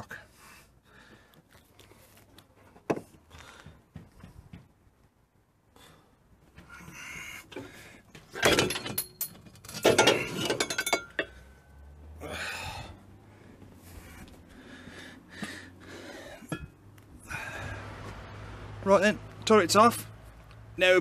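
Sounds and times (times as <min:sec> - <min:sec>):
metal clanking and clinking: 0:08.2 - 0:11.4.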